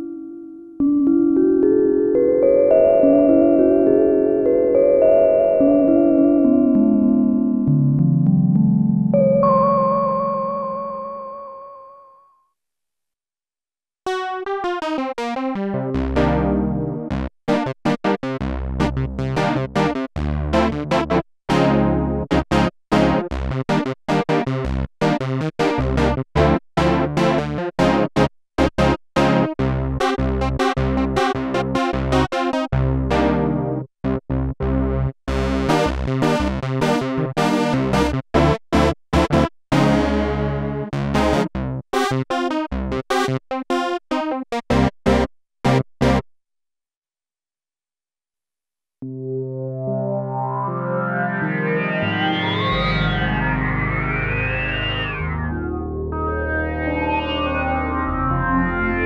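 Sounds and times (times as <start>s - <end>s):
synthesizer chord stabs: 0.0s - 11.0s, 49.0s - 59.0s
synthesizer notes and chords: 0.0s - 11.5s, 14.1s - 46.2s, 49.0s - 59.0s.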